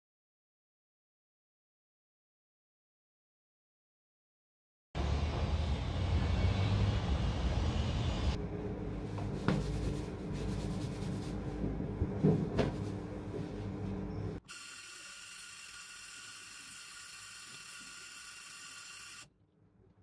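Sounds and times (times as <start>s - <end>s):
metro train carriage rumble: 5.0s - 14.4s
train hum: 5.0s - 14.4s.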